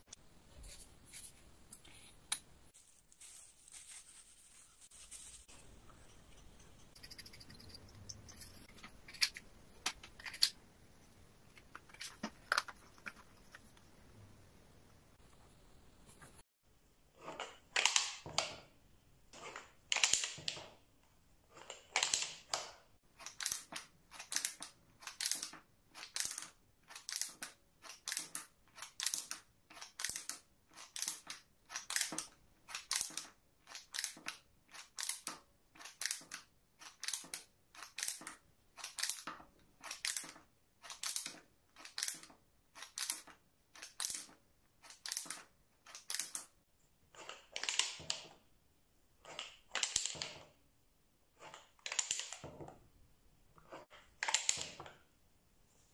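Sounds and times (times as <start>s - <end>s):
wooden calendar cards clacking: 11.5s - 13.8s.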